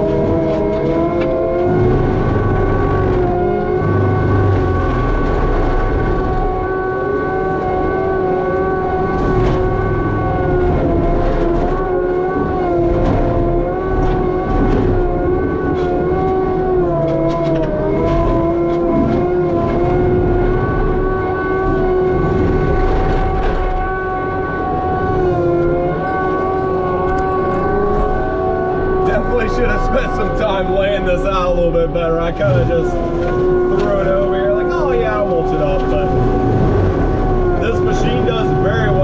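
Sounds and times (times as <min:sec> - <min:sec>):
low engine rumble: 0:00.0 - 0:39.0
skid steer hydraulic whine: 0:08.6 - 0:39.0.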